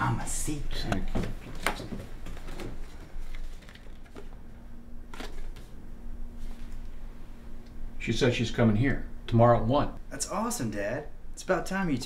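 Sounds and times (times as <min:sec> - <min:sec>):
faint low hum: 0:00.0 - 0:12.0
paper card rustling: 0:01.4 - 0:04.4, 0:05.1 - 0:05.8.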